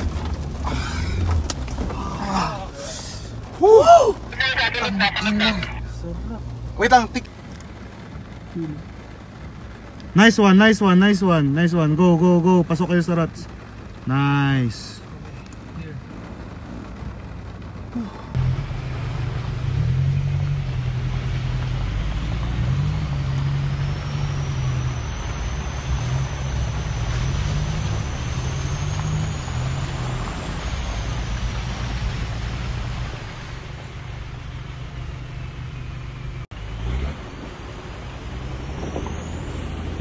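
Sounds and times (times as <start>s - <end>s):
truck engine revving: 15.5s - 40.0s.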